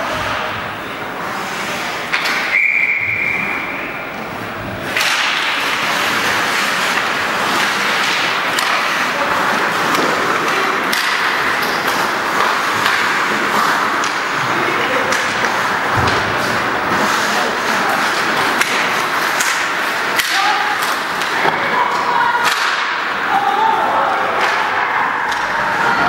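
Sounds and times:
hockey sticks and puck clacking: 0.0s - 26.0s
referee's whistle: 2.5s - 4.0s.

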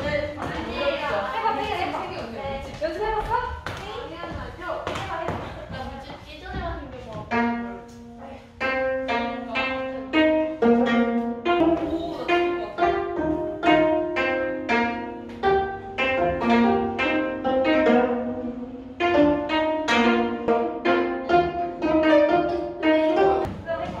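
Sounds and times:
plucked string melody: 4.8s - 24.0s.

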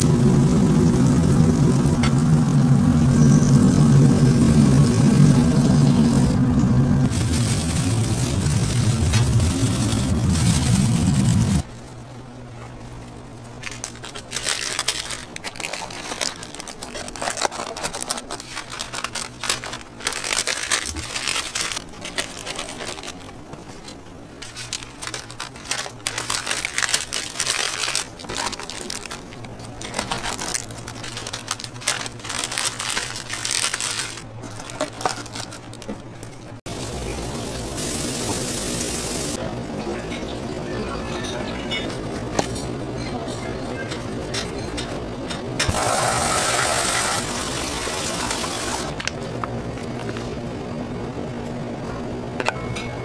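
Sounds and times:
paper wrapper crinkling: 13.0s - 36.6s.

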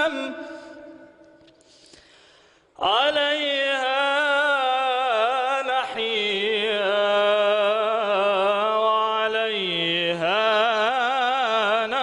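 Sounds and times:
man singing devotional chant: 0.0s - 1.2s, 2.8s - 12.0s.

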